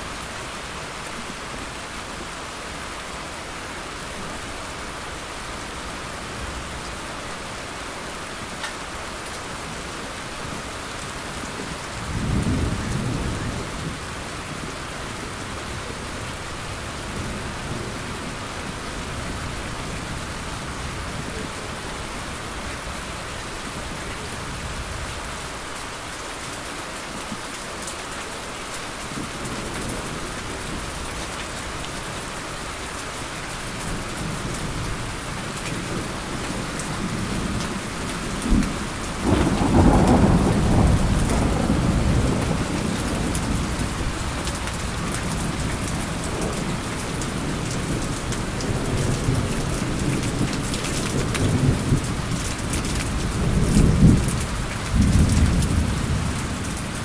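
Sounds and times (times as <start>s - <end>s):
steady rain: 0.0s - 57.0s
thunder rumbling: 35.8s - 57.0s.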